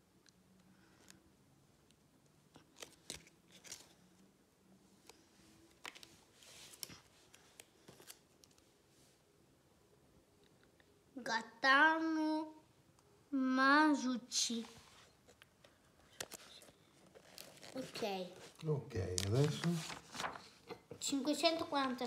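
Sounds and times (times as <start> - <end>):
sticker backing peeled and rustling: 2.5 - 4.2, 5.0 - 8.7, 14.6 - 22.0.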